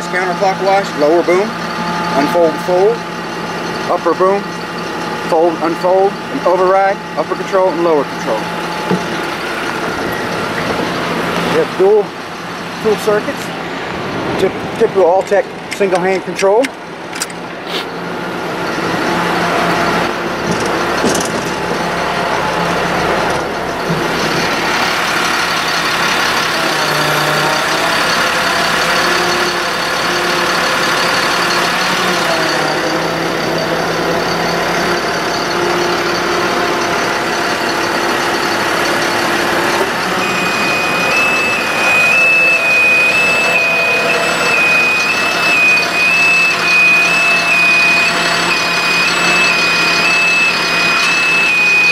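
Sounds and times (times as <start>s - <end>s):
two-tone alarm beeping: 0.0s - 11.6s, 25.4s - 51.9s
hydraulic whines: 0.0s - 51.9s
truck engine running: 0.0s - 51.9s.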